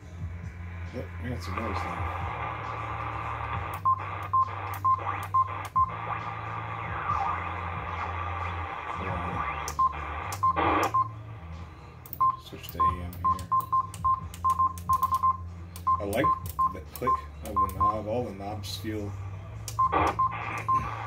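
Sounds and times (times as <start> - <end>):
low hum: 0.0 - 21.0
radio static hiss: 0.9 - 10.9, 18.0 - 21.0.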